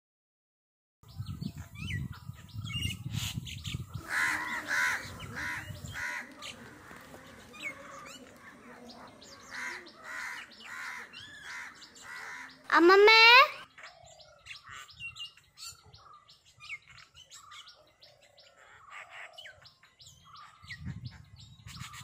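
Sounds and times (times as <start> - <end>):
small birds chirping: 1.0 - 22.0
crows cawing: 4.0 - 13.1.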